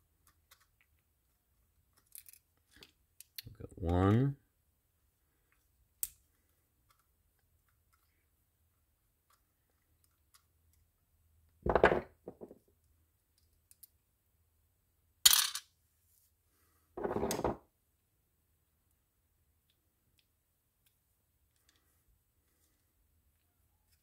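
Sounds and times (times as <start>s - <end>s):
metal parts clinking and knocking: 1.9s - 3.4s.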